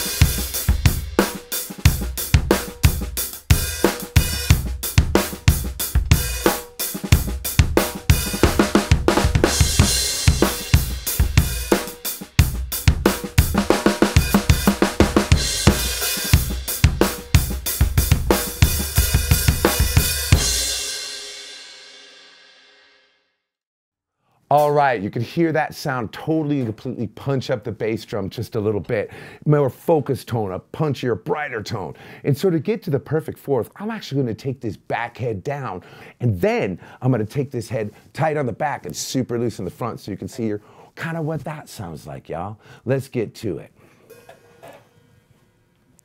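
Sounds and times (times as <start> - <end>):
bass drum: 0.0 - 20.9
snare drum: 0.0 - 20.9
cymbals: 0.0 - 22.9.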